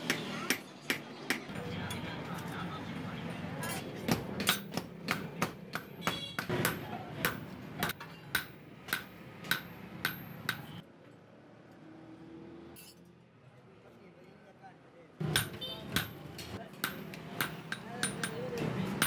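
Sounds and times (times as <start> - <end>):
hammer striking blade on anvil: 4.1 - 10.8, 15.2 - 19.0.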